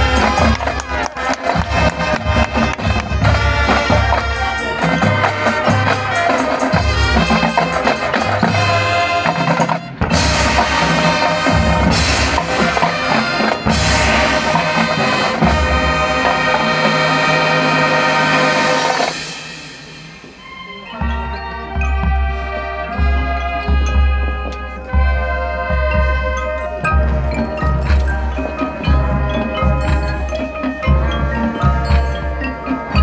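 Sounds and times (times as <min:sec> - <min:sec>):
snare and bass drums: 0:00.0 - 0:16.9
brass chords: 0:00.0 - 0:33.0.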